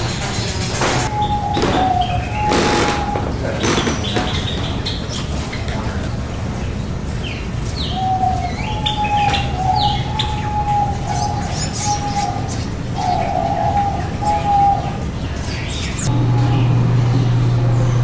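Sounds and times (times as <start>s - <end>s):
bird calling steady notes: 0.0s - 18.0s
birds chirping: 0.0s - 18.0s
low hum: 9.4s - 18.0s.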